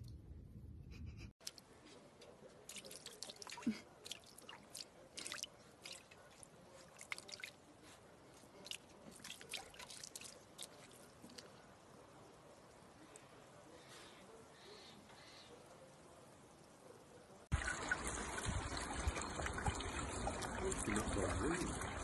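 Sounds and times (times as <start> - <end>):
water splashes and drips: 1.4 - 13.1, 17.5 - 22.0.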